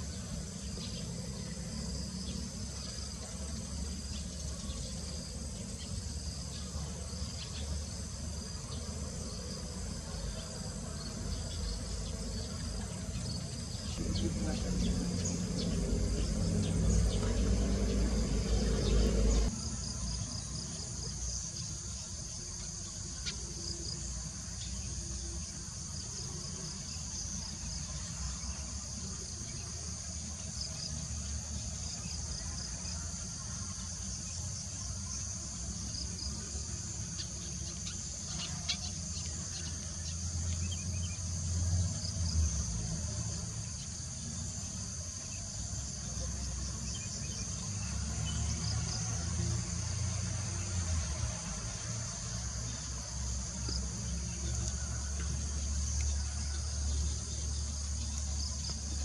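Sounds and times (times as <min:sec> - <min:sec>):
insects trilling: 0:00.0 - 0:59.0
loud low-pitched sound: 0:14.0 - 0:19.5
low rumble: 0:14.0 - 0:19.5.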